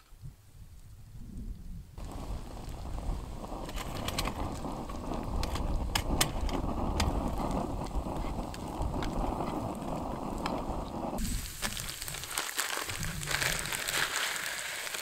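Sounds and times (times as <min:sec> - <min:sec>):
steady low rumble: 0:01.2 - 0:11.6.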